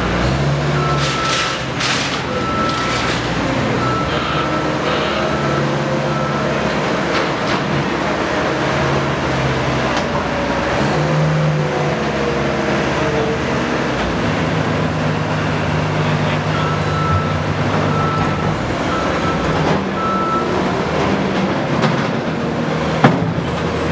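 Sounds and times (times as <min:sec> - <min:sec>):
diesel engine running under load: 0:00.0 - 0:23.9
reversing alarm beeping: 0:00.7 - 0:01.6, 0:02.3 - 0:03.2, 0:03.8 - 0:06.6, 0:16.5 - 0:20.7.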